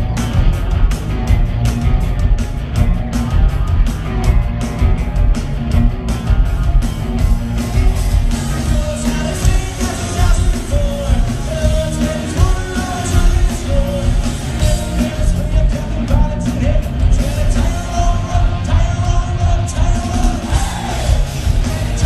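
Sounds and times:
punk rock band playing: 0.0 - 22.0
man singing: 8.5 - 22.0.

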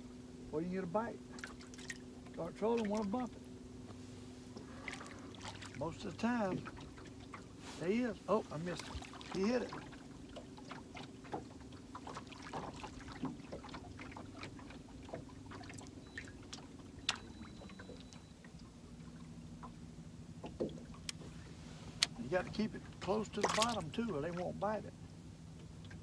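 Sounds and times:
boat motor humming: 0.0 - 26.0
light clicks and knocks: 20.4 - 21.4.

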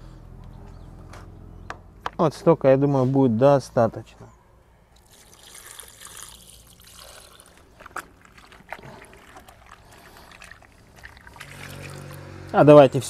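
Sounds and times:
water pouring from a jug: 5.0 - 12.5.

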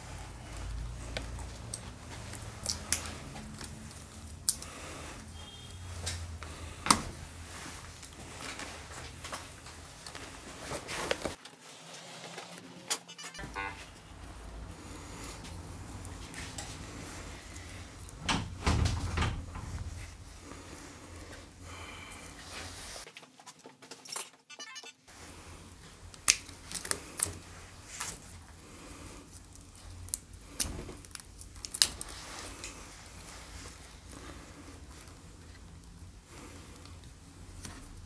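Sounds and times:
hands handling electrical wiring: 0.4 - 11.5.

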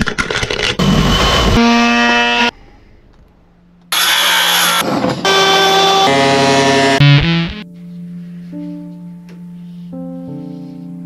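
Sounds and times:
circular saw cutting wood: 0.8 - 2.5, 3.9 - 7.6
spinning disc cutting metal: 3.9 - 7.6.

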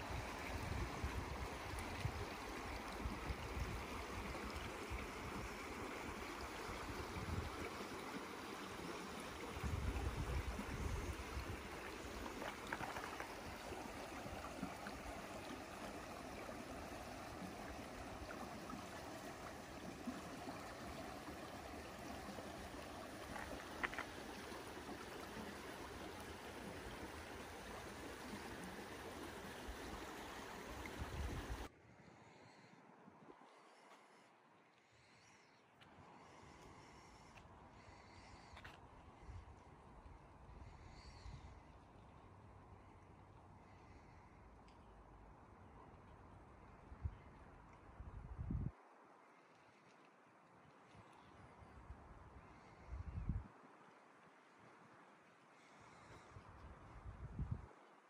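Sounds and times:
stream running over rocks: 0.0 - 31.7.

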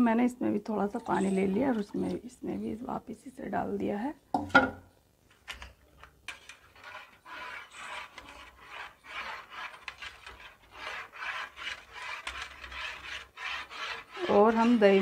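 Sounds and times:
whisk beating batter: 0.8 - 2.2, 6.3 - 15.0.

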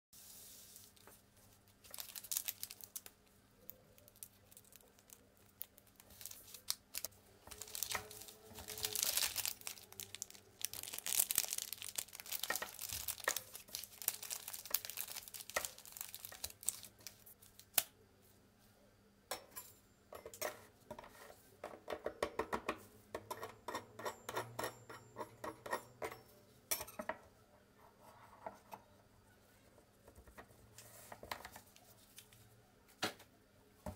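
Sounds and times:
plastic wrappers crinkling: 0.8 - 17.8.

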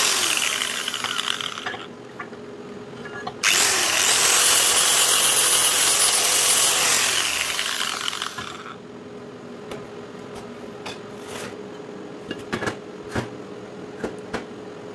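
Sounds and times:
angle grinder grinding metal: 0.0 - 1.9, 3.4 - 8.8
grinder spinning down: 0.0 - 1.9, 3.4 - 8.8.

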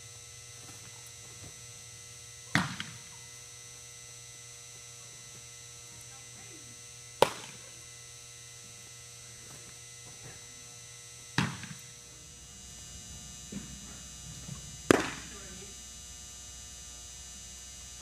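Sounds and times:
mains hum: 0.0 - 18.0
baseball smacking with echo: 2.5 - 3.2, 7.2 - 7.7, 11.3 - 12.0, 13.4 - 15.6.

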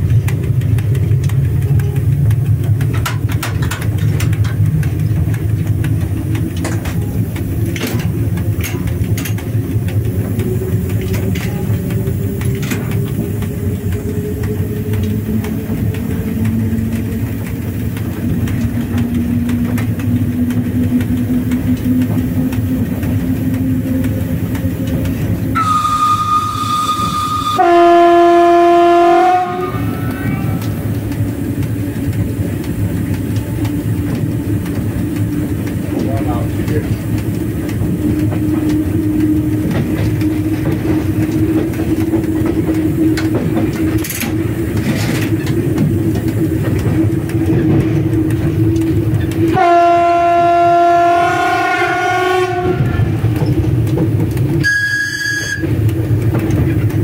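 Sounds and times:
locomotive rumble: 0.0 - 57.0
high steady whistle: 25.5 - 30.6, 54.6 - 55.7
loud low train horn: 25.5 - 30.9, 49.4 - 53.2, 54.6 - 55.8.

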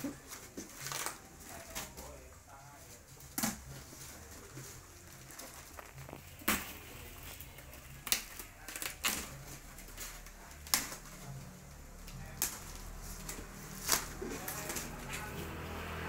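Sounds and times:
cardboard and tape ripping: 0.0 - 2.2, 3.2 - 15.6
cardboard rustles: 2.8 - 11.5.

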